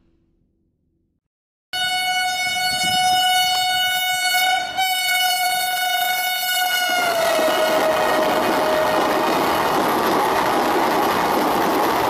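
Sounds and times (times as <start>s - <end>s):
train horn: 1.8s - 9.4s
rushing of passing train: 1.8s - 12.0s.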